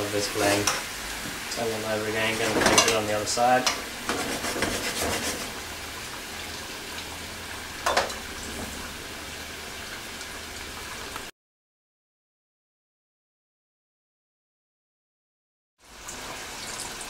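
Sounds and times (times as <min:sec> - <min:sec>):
sauce sizzling in a frying pan: 0:00.0 - 0:11.3, 0:15.8 - 0:17.0
metal tongs clinking on pan: 0:00.5 - 0:00.8, 0:02.4 - 0:03.9, 0:07.8 - 0:08.2.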